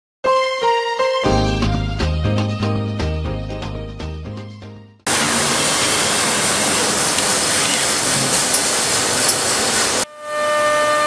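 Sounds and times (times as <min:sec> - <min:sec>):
cnc machine routing wood: 0:05.1 - 0:11.0
machine whine of held tones: 0:10.1 - 0:11.0.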